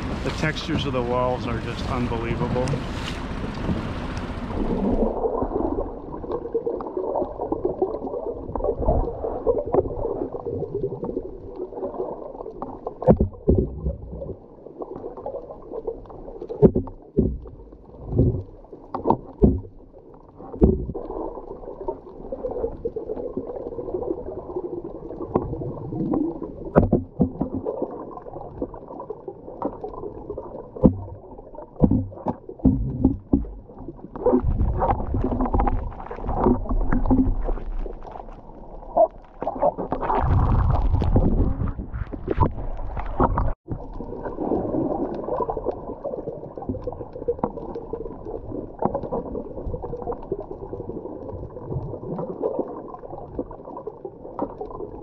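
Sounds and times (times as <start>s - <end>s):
underwater rush of water: 0.0s - 55.0s
sharp knocks and thumps: 16.6s - 17.6s, 19.1s - 19.7s, 20.6s - 20.9s, 30.8s - 31.2s, 31.8s - 33.6s.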